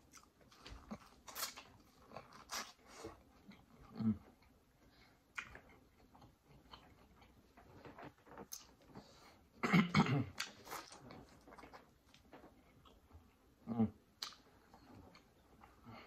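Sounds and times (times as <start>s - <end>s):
chewing and mouth smacks: 5.3s - 9.1s, 10.4s - 13.1s, 14.2s - 15.8s.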